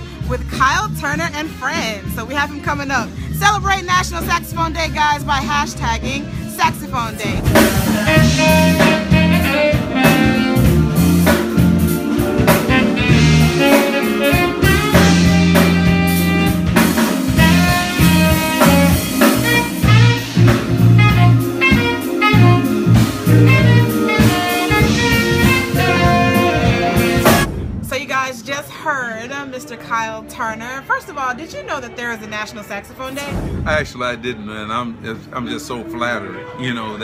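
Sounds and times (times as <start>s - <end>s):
saxophone melody: 0.0s - 27.5s, 35.4s - 37.0s
bass notes: 0.0s - 28.0s
drum kit: 0.0s - 28.2s.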